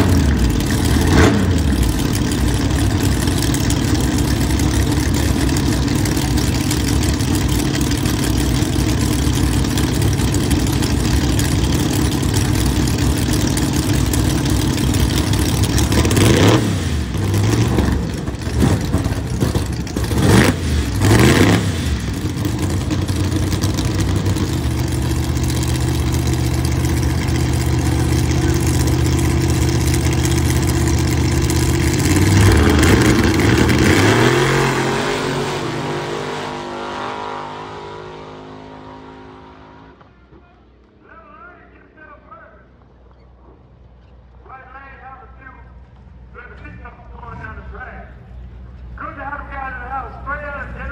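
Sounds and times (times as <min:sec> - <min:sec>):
race car engines revving: 0:00.0 - 0:41.0.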